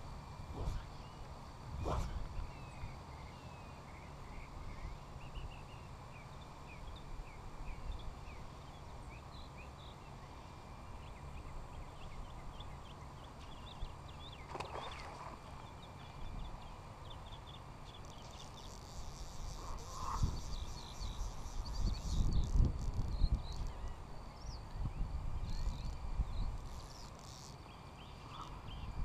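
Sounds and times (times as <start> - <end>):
wind rumble on microphone: 0.0 - 3.0, 19.3 - 27.0, 28.5 - 29.0
small birds chirping: 0.6 - 29.0.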